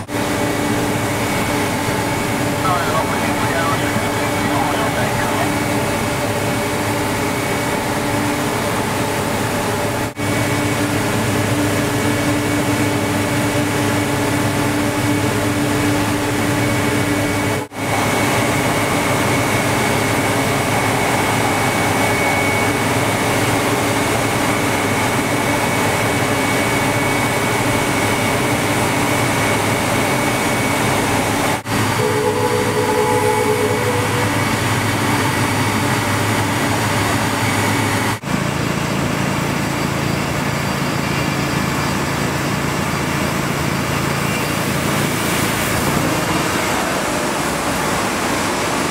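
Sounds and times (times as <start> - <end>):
snow blower engine drone: 0.0 - 48.9
vehicle horn: 32.0 - 34.6.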